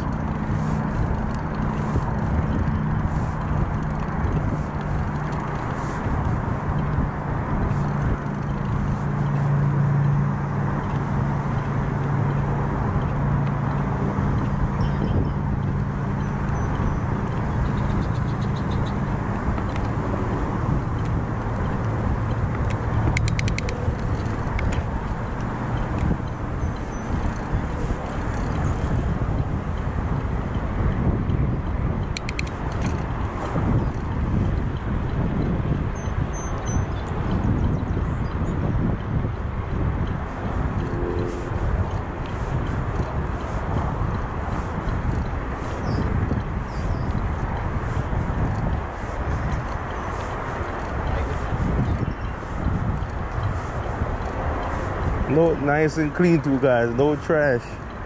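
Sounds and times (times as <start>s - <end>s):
bicycle tyre noise: 0.0s - 9.7s, 10.3s - 57.8s
wind noise: 0.0s - 58.0s
rapid clicking: 20.9s - 29.1s, 32.1s - 33.5s
low hum: 40.0s - 44.7s.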